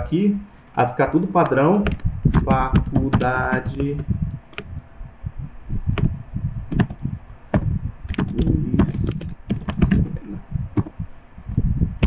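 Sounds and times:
keyboard typing: 1.4s - 4.8s, 6.7s - 11.0s.

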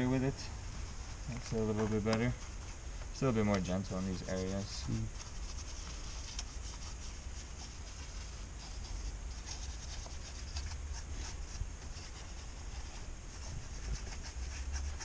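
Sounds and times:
low steady rumble: 0.0s - 15.0s
hand scrubbing strokes: 3.8s - 15.0s.

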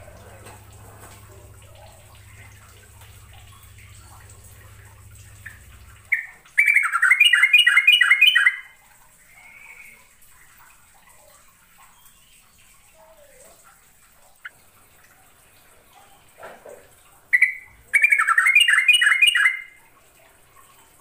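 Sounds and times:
low hum: 0.0s - 6.5s
bulbul singing: 0.0s - 10.1s, 17.3s - 19.8s.

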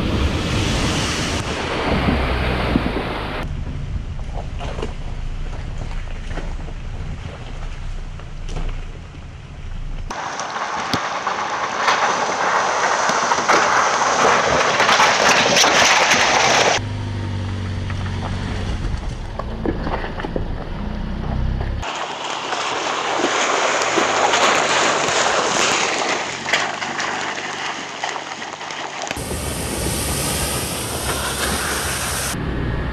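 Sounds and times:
engine droning: 0.0s - 22.1s, 26.3s - 32.9s
tyres crunching over rock: 17.8s - 20.8s.

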